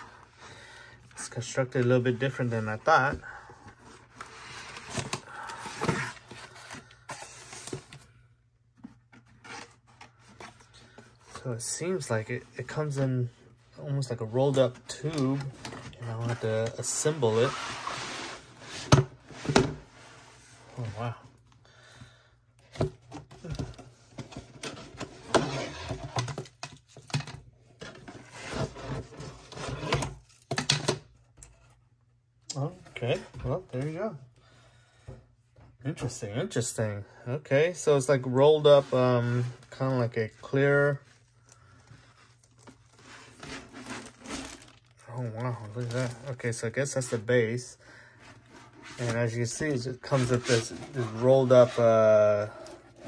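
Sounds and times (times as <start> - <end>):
cardboard scraping and rustling: 14.6 - 21.0, 42.1 - 47.2, 48.3 - 53.0.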